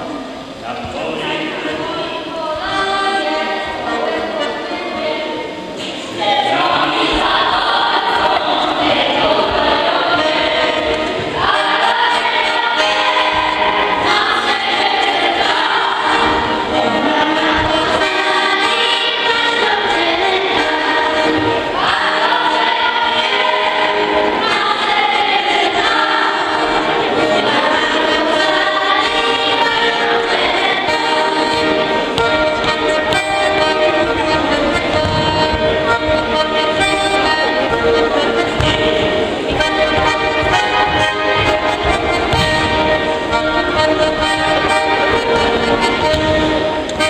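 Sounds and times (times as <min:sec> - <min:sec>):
accordion: 0:00.0 - 0:47.0
children singing: 0:00.0 - 0:47.0.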